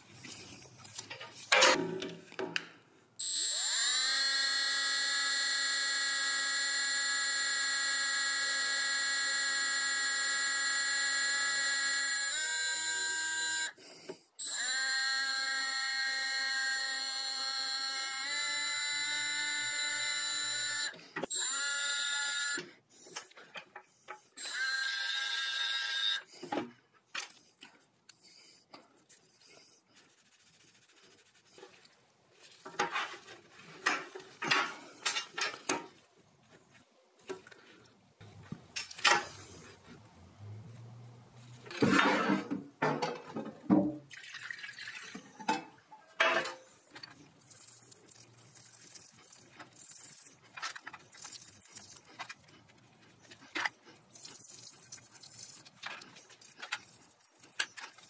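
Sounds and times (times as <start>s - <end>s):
rotary tool grinding whine: 3.2s - 13.8s, 14.4s - 22.7s, 24.4s - 26.3s
toothbrush scrubbing metal parts: 29.1s - 35.6s, 46.7s - 58.0s.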